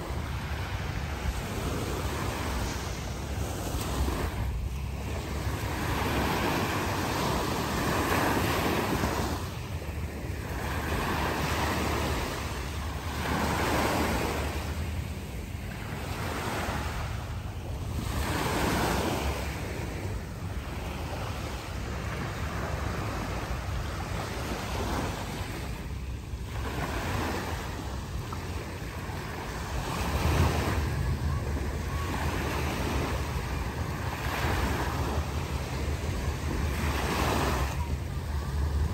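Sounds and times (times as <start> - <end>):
small waves washing onto sand: 0.0 - 38.9
wind rumble on microphone: 0.0 - 38.9.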